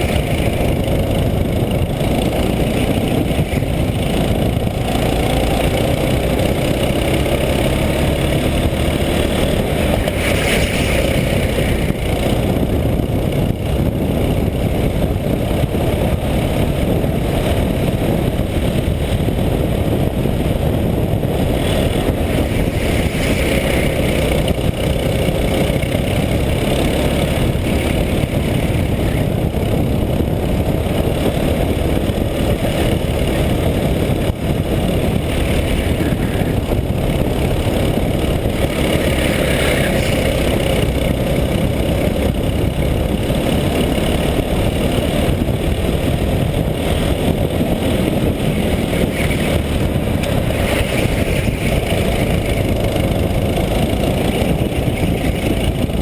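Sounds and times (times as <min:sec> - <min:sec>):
go-kart engine running: 0:00.0 - 0:56.0
wind and road noise: 0:00.0 - 0:56.0.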